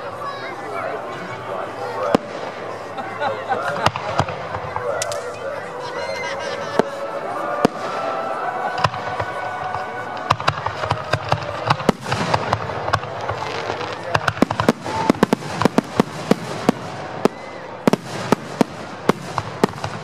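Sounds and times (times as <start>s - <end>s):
fireworks crackling hiss: 0.0s - 20.0s
fireworks bangs: 1.4s - 5.8s, 6.6s - 20.0s.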